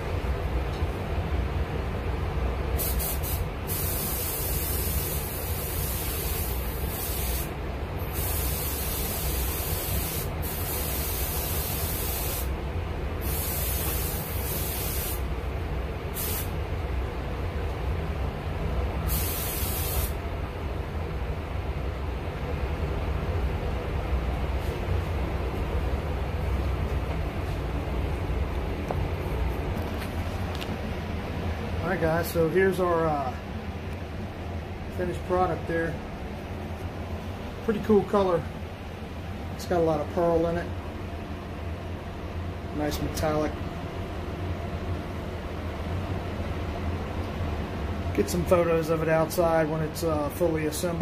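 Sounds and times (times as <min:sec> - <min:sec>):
steady low hum: 0:00.0 - 0:51.0
spray gun hissing: 0:02.8 - 0:12.5, 0:13.2 - 0:15.3, 0:16.2 - 0:16.6, 0:19.1 - 0:20.2.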